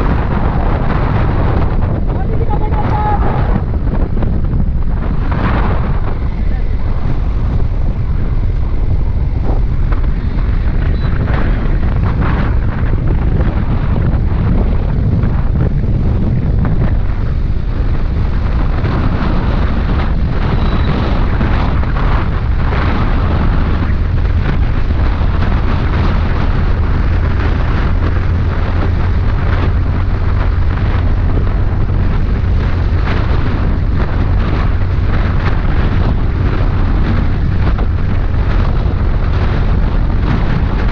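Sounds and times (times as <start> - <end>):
motorcycle running: 0.0 - 40.9
wind buffeting microphone: 0.0 - 40.9.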